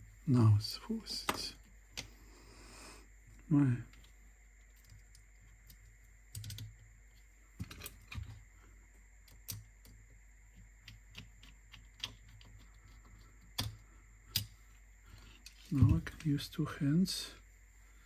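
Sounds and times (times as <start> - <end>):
small parts and tools clicking: 3.3 - 16.3.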